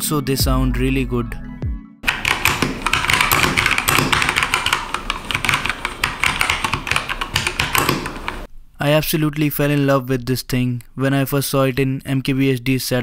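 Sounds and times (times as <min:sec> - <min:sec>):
mechanical keyboard typing: 0:02.0 - 0:08.5.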